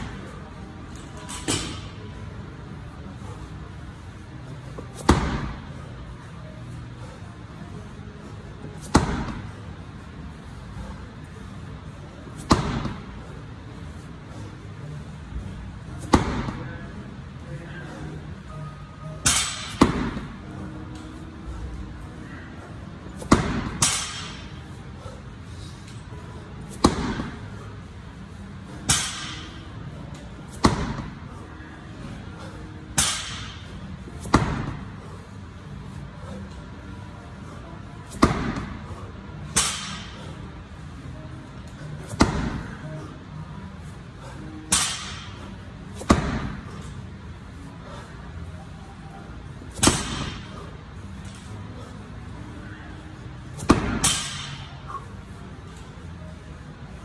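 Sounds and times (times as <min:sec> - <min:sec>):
slam ball thudding on gym floor: 0:38.2 - 0:38.7, 0:46.0 - 0:46.6.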